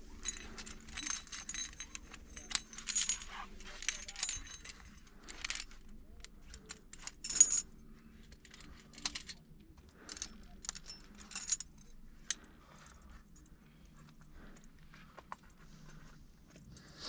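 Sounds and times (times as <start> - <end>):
climbing hardware clinking: 0.0 - 13.5.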